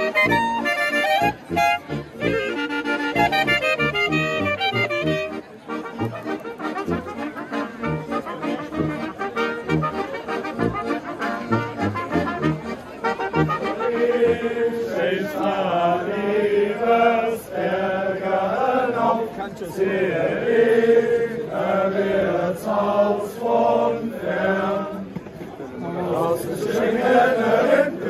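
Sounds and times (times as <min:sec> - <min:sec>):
brass band playing dance tune: 0:00.0 - 0:14.7
crowd singing along: 0:13.7 - 0:28.0.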